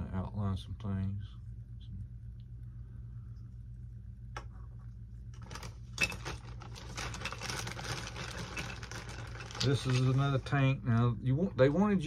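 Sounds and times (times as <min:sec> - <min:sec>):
steady low hum: 0:00.0 - 0:12.0
plastic bag rustling: 0:05.3 - 0:10.8
small plastic parts clinking: 0:05.4 - 0:10.6.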